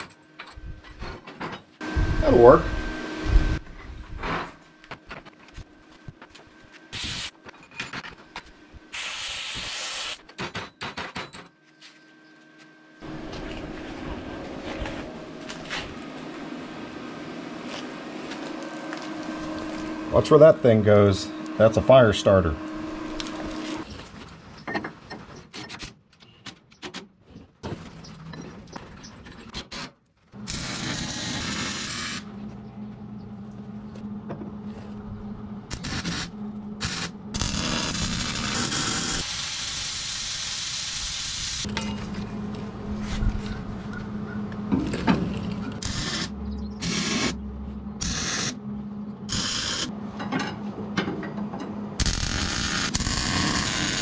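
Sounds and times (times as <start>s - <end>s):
welder crackling: 30.4s - 32.3s, 35.7s - 41.7s, 52.0s - 54.0s.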